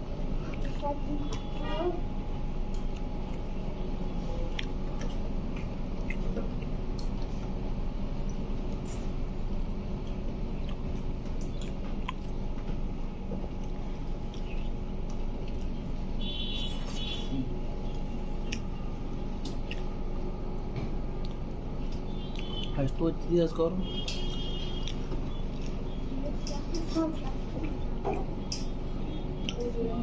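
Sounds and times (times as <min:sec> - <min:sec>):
restaurant room hum: 0:00.0 - 0:30.0.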